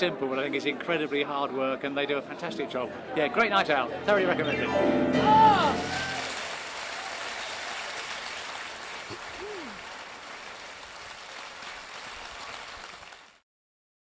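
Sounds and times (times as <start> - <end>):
person calling out: 5.2 - 6.3, 9.4 - 9.8
audience applauding: 5.3 - 13.4.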